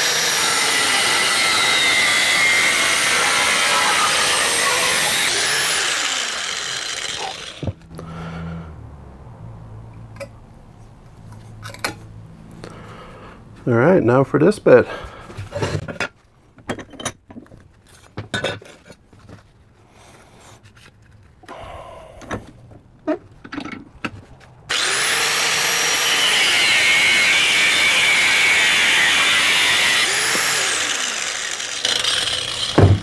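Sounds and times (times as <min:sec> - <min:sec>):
angle grinder cutting steel: 0:00.0 - 0:08.0, 0:24.7 - 0:33.0
metal knocks and clanks: 0:32.7 - 0:33.0.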